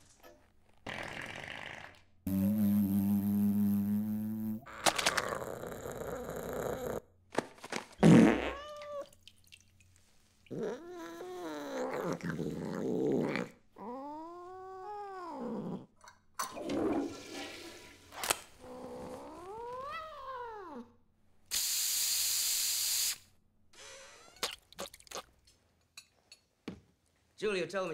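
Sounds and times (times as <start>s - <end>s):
loud low fart-like burst: 0.8s - 4.7s, 8.0s - 8.7s
cat meowing: 8.4s - 9.2s, 10.5s - 12.4s, 18.6s - 20.9s.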